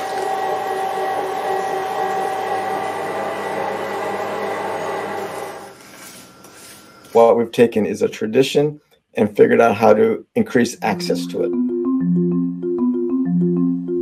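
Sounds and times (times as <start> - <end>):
electric meat grinder humming: 0.0 - 5.8.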